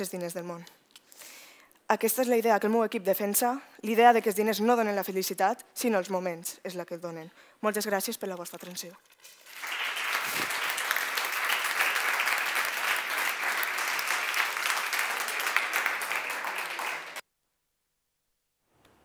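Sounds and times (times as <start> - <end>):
audience applauding: 9.4 - 17.2.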